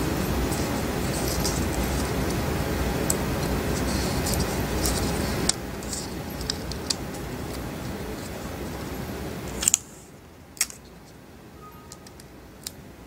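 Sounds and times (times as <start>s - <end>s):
background hiss: 0.0s - 13.0s
plastic film crackling: 0.2s - 10.0s.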